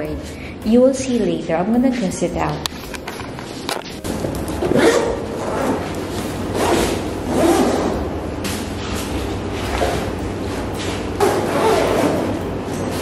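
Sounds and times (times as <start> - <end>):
zipper being pulled open: 4.6 - 5.9, 6.5 - 8.0, 11.2 - 12.4.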